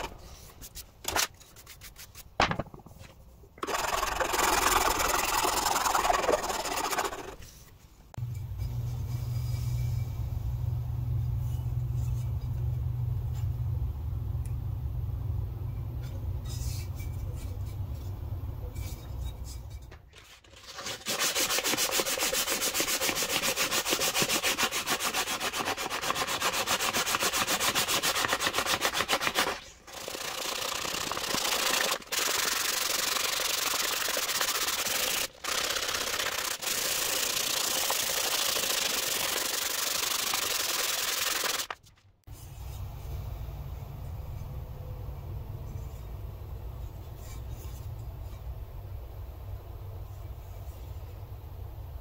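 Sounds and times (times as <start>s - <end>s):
sandpaper rubbing on wood: 3.8s - 7.6s, 20.6s - 41.8s.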